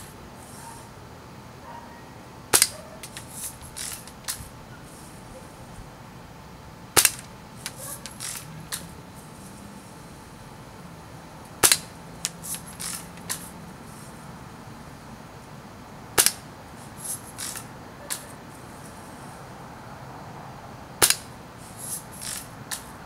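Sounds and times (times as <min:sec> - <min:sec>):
bb gun shots cracking: 0:02.5 - 0:04.4, 0:06.9 - 0:08.9, 0:11.6 - 0:13.4, 0:16.1 - 0:16.5, 0:21.0 - 0:21.4.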